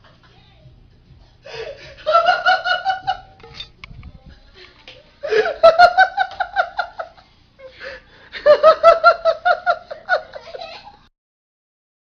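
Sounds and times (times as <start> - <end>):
woman laughing hard: 1.5 - 3.4, 5.2 - 11.1.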